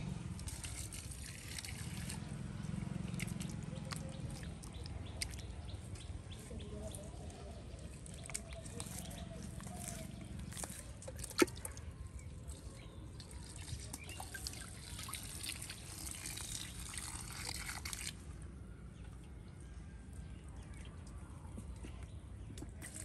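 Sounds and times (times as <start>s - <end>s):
shallow water trickling and dripping: 0.0s - 23.0s.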